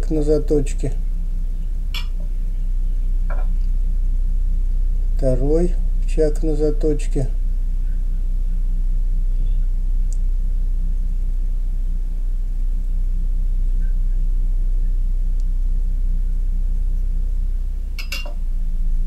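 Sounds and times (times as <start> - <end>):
low electric hum: 0.0 - 19.0
faint high whine: 5.1 - 10.2, 12.0 - 19.0.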